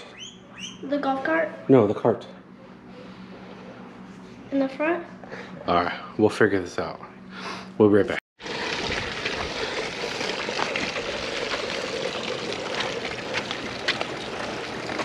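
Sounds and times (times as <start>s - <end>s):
cart rattling and clicking: 8.4s - 15.0s
cart wheels rolling on concrete: 8.4s - 15.0s.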